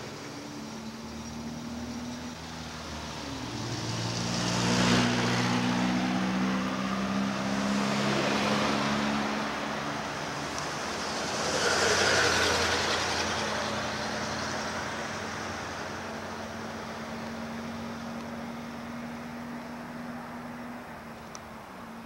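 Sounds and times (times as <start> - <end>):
vehicle passing by: 0.0 - 22.0.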